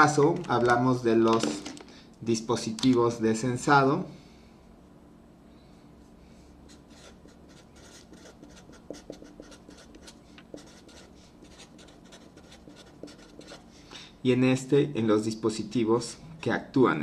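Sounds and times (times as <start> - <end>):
marker scratching on paper: 6.7 - 13.6.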